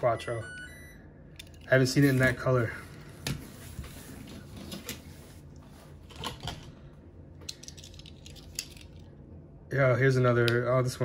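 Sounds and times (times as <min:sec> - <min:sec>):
low room hum: 0:00.0 - 0:11.0
toy cars clicking and rustling: 0:07.4 - 0:09.1.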